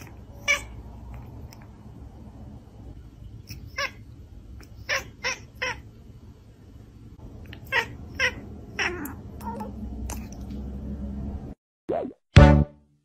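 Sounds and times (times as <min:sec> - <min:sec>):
cat meowing: 0:07.5 - 0:10.4.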